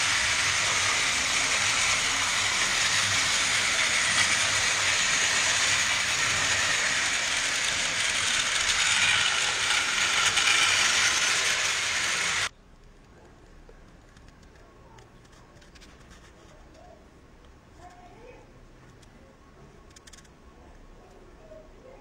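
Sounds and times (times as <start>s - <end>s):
toy train motors whirring: 0.0s - 12.5s.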